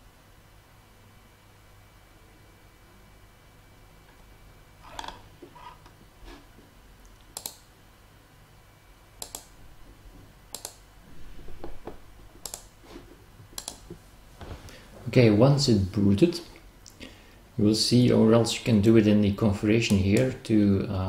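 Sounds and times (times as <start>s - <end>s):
computer mouse clicks: 7.1s - 7.7s, 9.2s - 9.6s, 10.5s - 10.8s, 12.4s - 12.7s, 13.5s - 14.0s.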